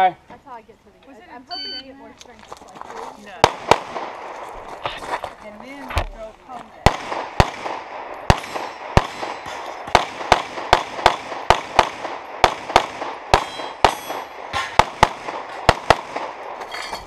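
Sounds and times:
handgun shots: 6.9 - 16.5.

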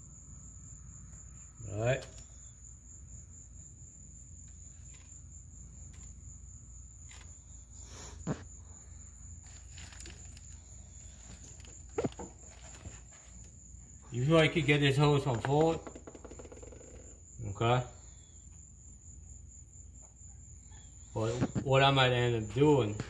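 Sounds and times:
crickets trilling: 0.0 - 23.0.

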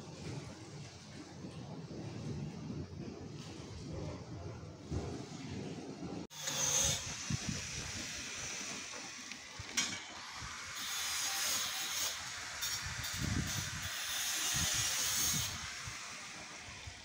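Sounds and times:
water spraying from a hose: 6.4 - 17.0.

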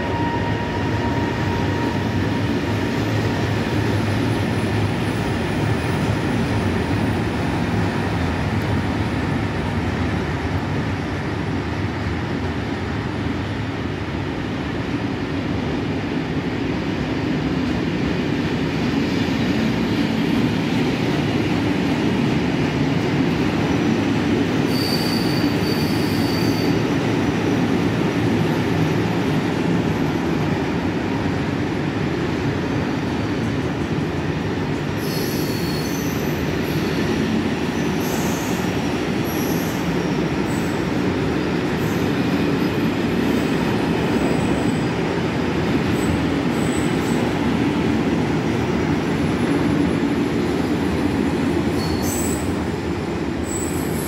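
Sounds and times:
train wheels rumbling on rails: 0.0 - 54.0
high-pitched wheel squeals: 24.7 - 26.8, 35.0 - 36.4, 51.8 - 52.5.

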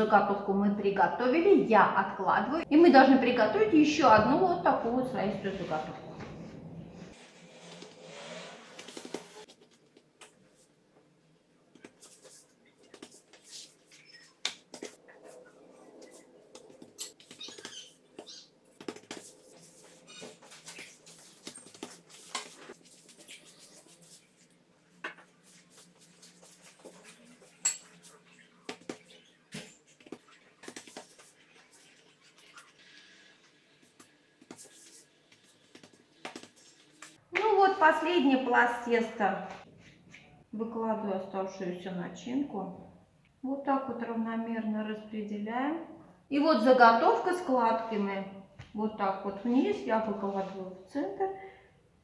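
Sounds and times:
hands tapping and patting dough: 16.6 - 19.3, 34.0 - 37.5.

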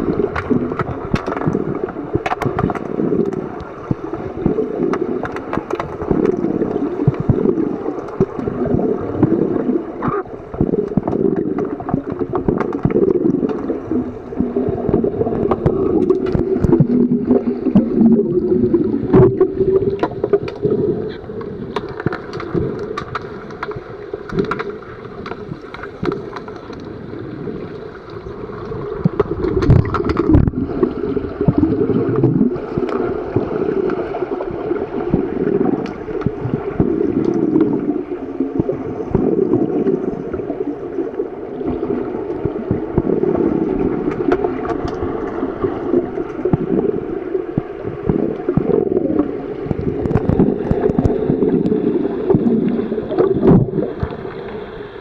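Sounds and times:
underwater churning water and bubbles: 0.0 - 55.0
small clicks and knocks: 21.7 - 26.9.

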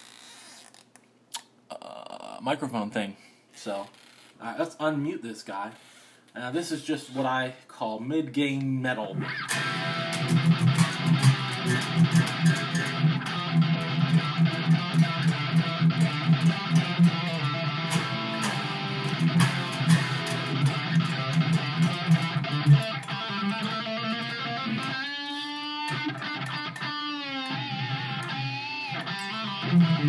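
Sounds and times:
distorted electric guitar riff: 9.1 - 30.0.

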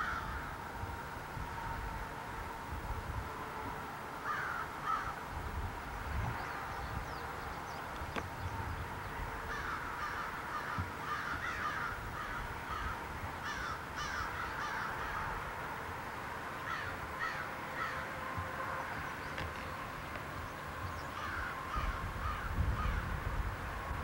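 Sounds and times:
crows cawing: 0.0 - 0.6, 4.2 - 5.3, 9.4 - 15.6, 16.6 - 18.2, 21.0 - 23.2.

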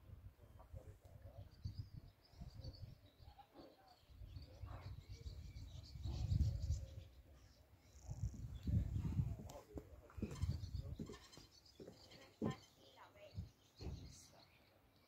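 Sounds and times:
faint bird chirps: 0.8 - 15.0
low rumbling on microphone: 4.1 - 7.2, 8.0 - 11.1.

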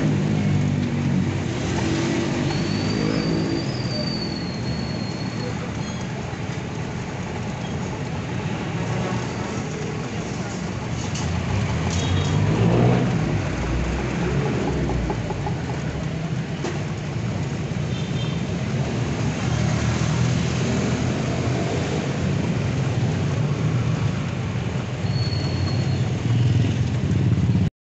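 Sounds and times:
motorcycles passing: 0.0 - 27.7
brief high squeal: 2.5 - 6.1, 25.0 - 26.1.

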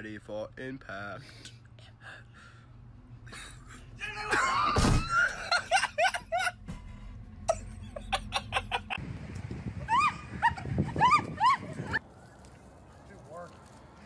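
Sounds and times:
people laughing: 3.3 - 6.6, 7.5 - 9.0
person shrieking: 4.0 - 5.2
loud thump: 4.8 - 5.2.

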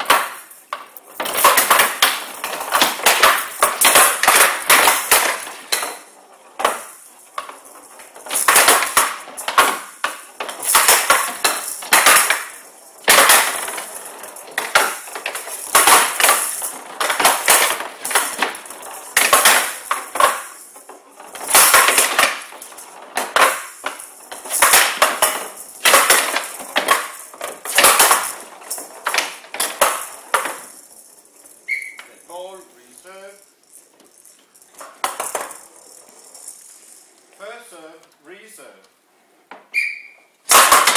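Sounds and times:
rattling ball struck by bats: 0.0 - 7.5, 21.4 - 30.9
ball banging off wooden rails: 0.0 - 32.2, 33.6 - 37.0, 39.5 - 40.9.

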